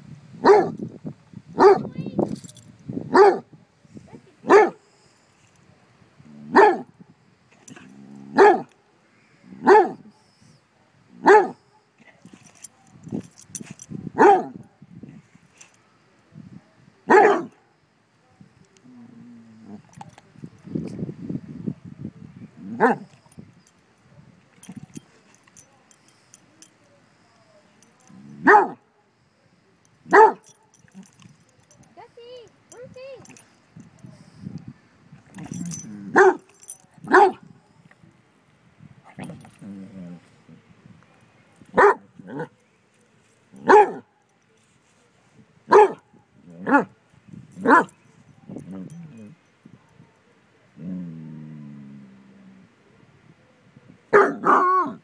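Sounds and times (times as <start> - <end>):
dog barking: 0.4 - 0.8, 1.6 - 1.9, 3.1 - 3.5, 4.5 - 4.8, 6.5 - 6.9, 8.4 - 8.7, 9.6 - 10.0, 11.2 - 11.6, 14.2 - 14.6, 17.1 - 17.6, 28.4 - 28.8, 30.1 - 30.5, 36.1 - 36.5, 37.1 - 37.4, 41.8 - 42.6, 43.6 - 44.1, 45.7 - 46.0, 47.6 - 47.9, 54.1 - 55.0
dog growling low: 7.7 - 8.4, 18.8 - 19.9, 39.2 - 40.7, 48.5 - 49.4, 50.8 - 52.9.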